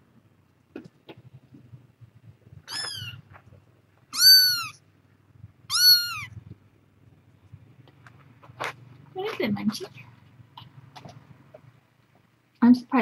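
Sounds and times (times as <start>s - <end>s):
kitten mewing: 2.6s - 3.2s, 4.1s - 4.8s, 5.7s - 6.5s.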